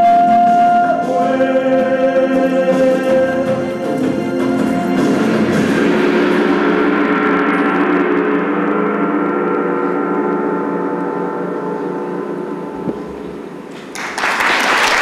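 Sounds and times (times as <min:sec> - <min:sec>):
gong ringing: 0:04.8 - 0:13.9
audience applause: 0:13.8 - 0:15.0.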